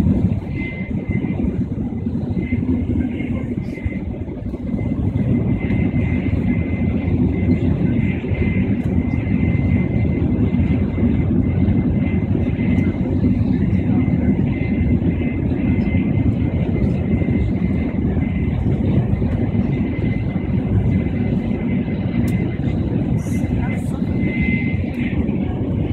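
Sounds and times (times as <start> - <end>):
train rumble inside cabin: 0.0 - 25.9.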